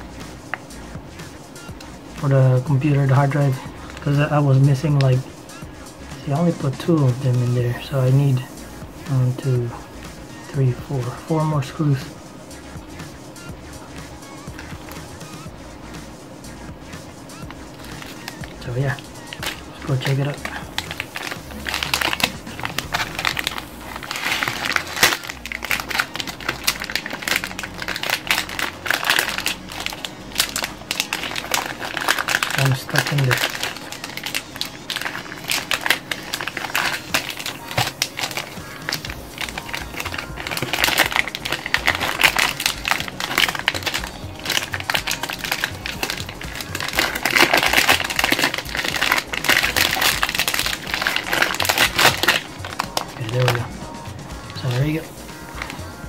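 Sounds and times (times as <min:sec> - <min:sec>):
packaging crinkling and crunching: 0:06.2 - 0:09.8, 0:17.4 - 0:53.8, 0:54.4 - 0:56.0
rapid clicking and rattling: 0:17.2 - 0:53.7.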